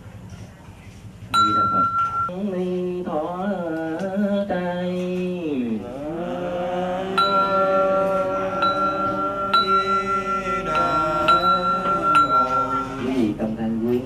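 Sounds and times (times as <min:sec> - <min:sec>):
brass bowl bell ringing: 0:01.4 - 0:02.3, 0:07.2 - 0:07.8, 0:08.6 - 0:13.0
monk chanting through microphone: 0:04.2 - 0:14.0.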